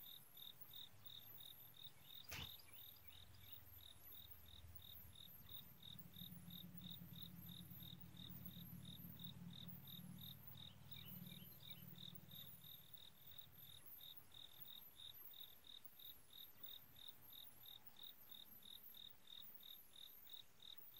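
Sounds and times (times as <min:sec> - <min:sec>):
faint crickets chirping: 0:00.0 - 0:20.9
low hum: 0:02.3 - 0:13.8.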